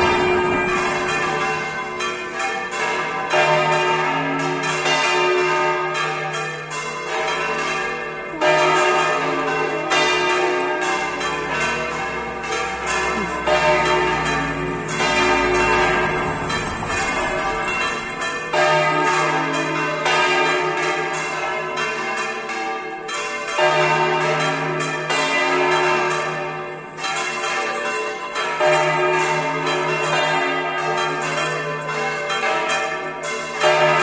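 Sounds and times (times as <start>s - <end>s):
deep bell striking: 0.0s - 20.0s
church bells ringing: 0.0s - 34.0s.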